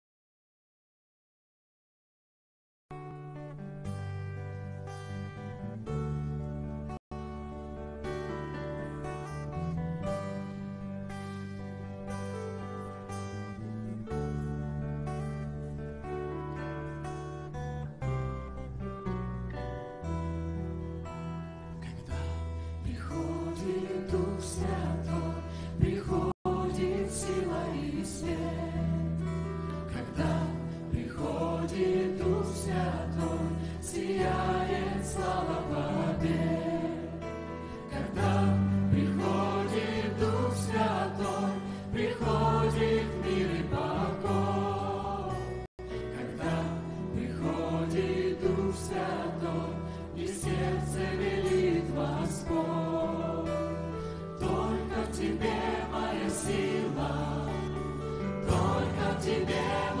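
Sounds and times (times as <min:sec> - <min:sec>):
choir singing a worship song: 0:21.8 - 1:00.0
worship band playing: 0:30.2 - 1:00.0.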